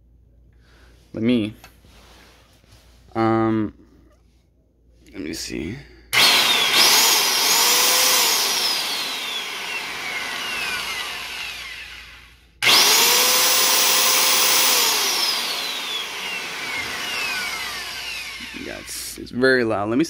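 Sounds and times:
circular saw motor whining: 0:06.2 - 0:19.2.

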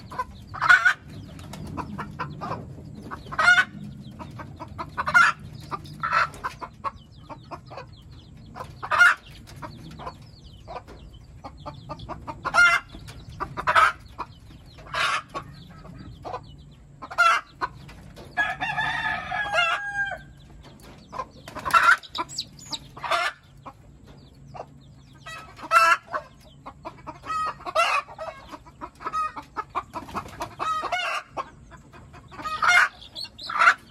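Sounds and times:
chickens clucking: 0:00.0 - 0:33.9
rooster crowing: 0:18.4 - 0:20.3.

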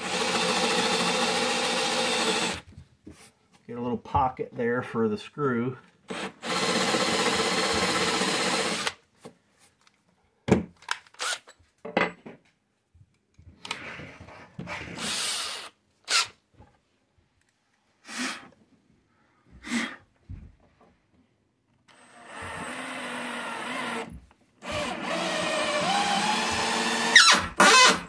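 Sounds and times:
cordless drill boring into wood: 0:00.0 - 0:02.6, 0:06.1 - 0:09.0, 0:11.2 - 0:11.5, 0:15.0 - 0:16.3, 0:21.9 - 0:28.0.

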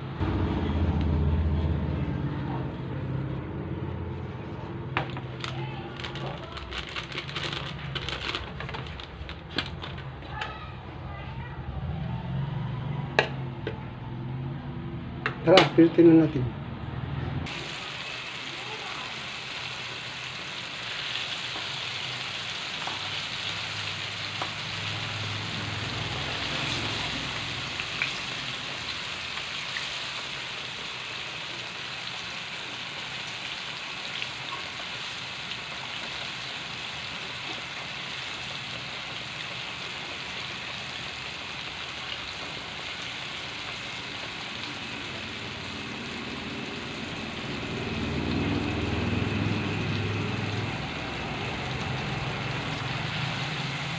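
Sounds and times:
low hum: 0:00.0 - 0:05.0
chicken deep-frying in oil: 0:00.1 - 0:10.8, 0:17.4 - 0:53.9.

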